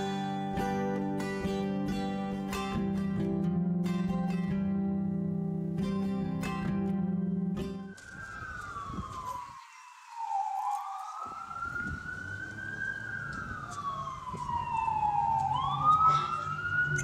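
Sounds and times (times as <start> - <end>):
plucked string music: 0.0 - 7.9
emergency siren wailing: 6.9 - 17.0.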